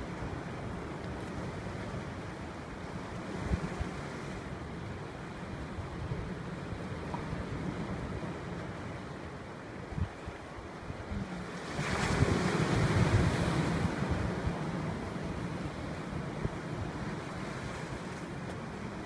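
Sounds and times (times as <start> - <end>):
sea waves breaking on rocks: 6.1 - 19.0
wind buffeting microphone: 9.9 - 18.1.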